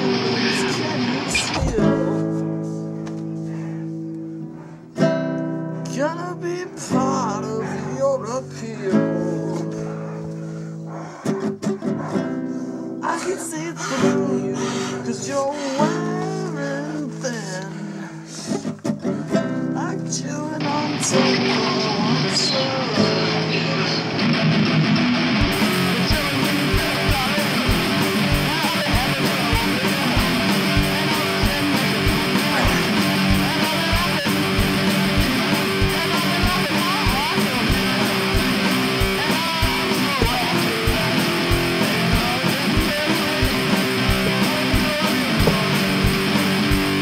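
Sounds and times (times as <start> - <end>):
fast rock song: 0.0 - 2.2, 20.1 - 47.0.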